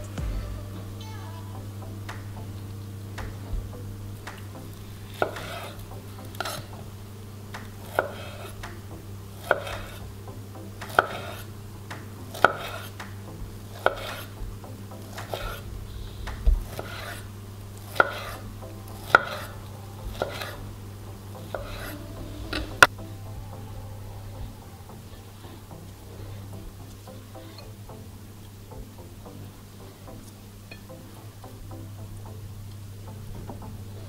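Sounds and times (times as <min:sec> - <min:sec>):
steady low hum: 0:00.0 - 0:34.0
knife slicing fruit: 0:05.2 - 0:05.8, 0:09.4 - 0:10.0, 0:10.8 - 0:11.5, 0:12.3 - 0:13.0, 0:13.8 - 0:14.4, 0:15.1 - 0:15.6, 0:16.6 - 0:18.4, 0:19.0 - 0:20.6, 0:21.5 - 0:22.0.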